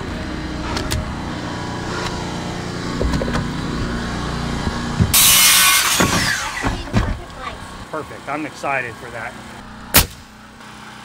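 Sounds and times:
power saw cutting wood: 0.0 - 7.5
steady low hum: 0.0 - 10.7
saw blade winding down: 5.1 - 6.6.

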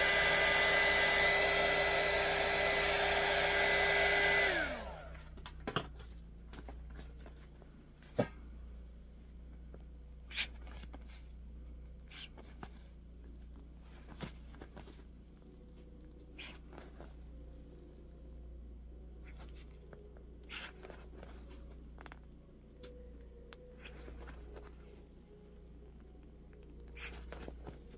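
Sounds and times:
low steady hum: 0.0 - 27.9
rubber tire squeaking: 20.4 - 21.4.

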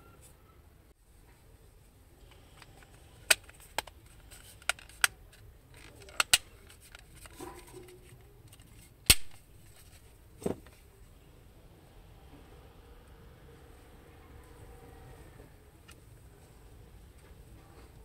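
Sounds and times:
hard plastic clicks: 2.3 - 7.3.

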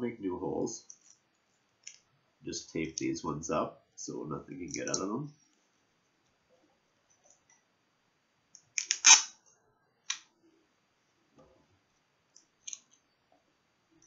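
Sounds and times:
sticky tape pulled and torn: 8.7 - 9.4.

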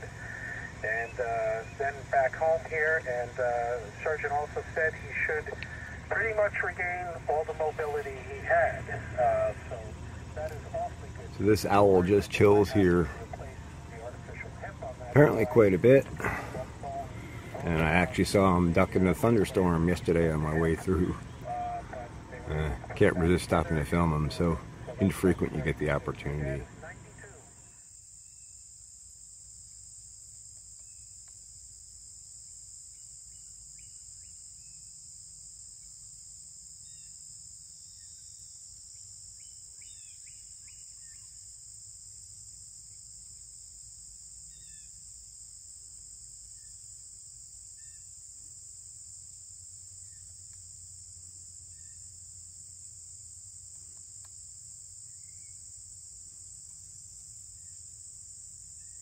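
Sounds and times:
low background hum: 0.0 - 59.0
insects shrilling: 25.2 - 59.0
faint bird chirps: 39.3 - 41.4, 44.4 - 45.0, 47.7 - 48.1.

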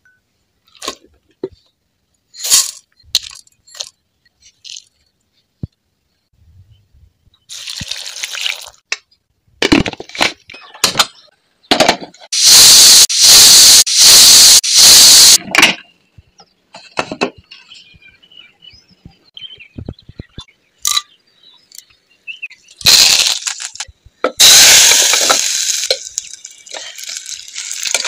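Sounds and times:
pressure cooker whistle hissing: 12.4 - 15.4, 24.4 - 26.0.

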